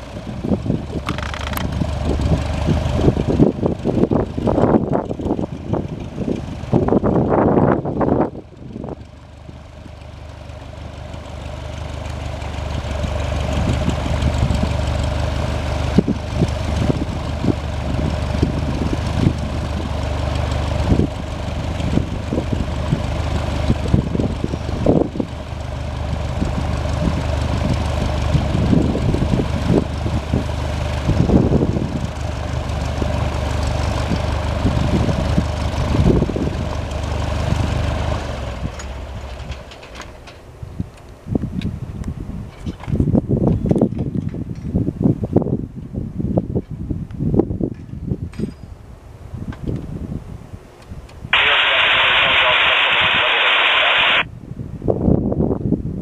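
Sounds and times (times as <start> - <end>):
airplane engine idling: 0.0 - 39.4, 51.4 - 54.3
wind buffeting microphone: 41.3 - 48.5, 54.4 - 56.0.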